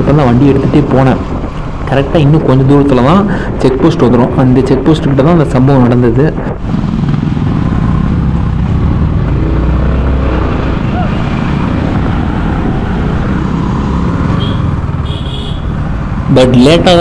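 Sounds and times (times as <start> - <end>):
motorcycle engine running: 6.6 - 9.8.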